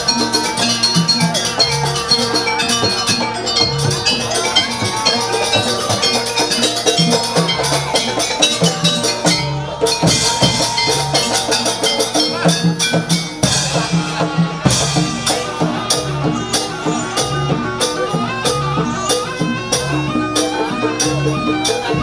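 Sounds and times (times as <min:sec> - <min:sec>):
ringing gong-chimes: 0:00.0 - 0:15.5
drums: 0:00.0 - 0:22.0.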